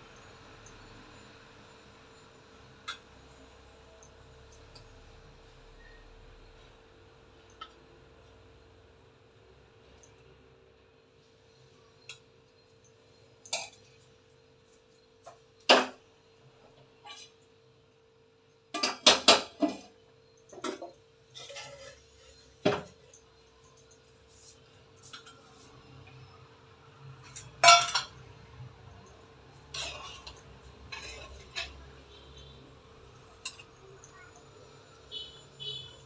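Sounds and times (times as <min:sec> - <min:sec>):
metal containers clinking: 0:13.4 - 0:14.0, 0:27.2 - 0:28.2, 0:29.7 - 0:31.8.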